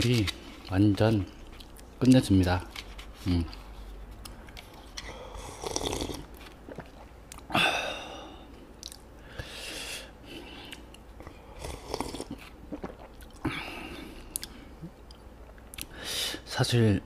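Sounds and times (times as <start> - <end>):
wet mouth sounds: 4.2 - 7.6, 8.8 - 9.1, 10.7 - 13.6
slurping and swallowing: 4.7 - 7.5, 10.7 - 13.6.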